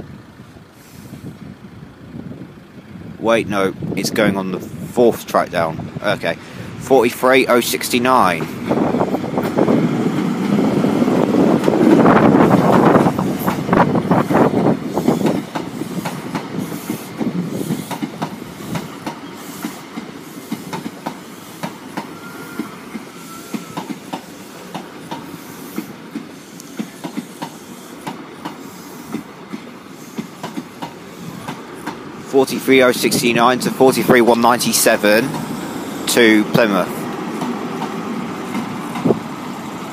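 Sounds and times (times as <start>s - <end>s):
diesel locomotive moving away: 0.0s - 39.9s
train wheels clacking over rail joints: 11.2s - 32.1s, 34.6s - 39.3s.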